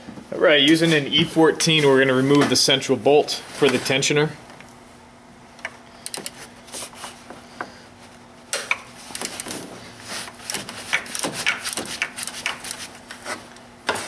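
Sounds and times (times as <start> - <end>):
ratchet clicks and metal knocks: 5.6 - 6.4, 10.4 - 12.9.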